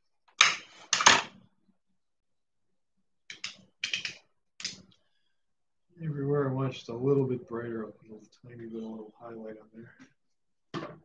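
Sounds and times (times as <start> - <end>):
hard objects tapping and clacking: 0.3 - 1.4, 3.3 - 5.0.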